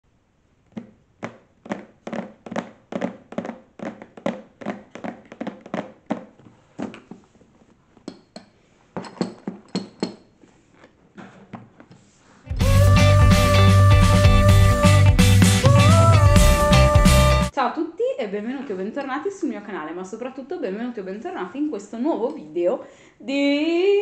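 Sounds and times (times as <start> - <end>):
hands drumming on cardboard box: 0.8 - 7.0.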